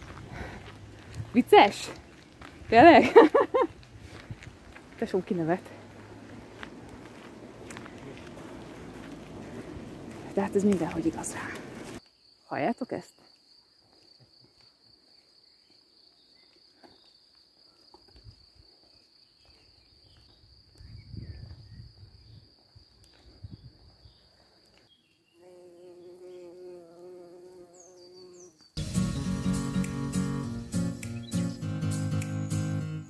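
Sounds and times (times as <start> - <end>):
guitar music: 28.8 - 33.0.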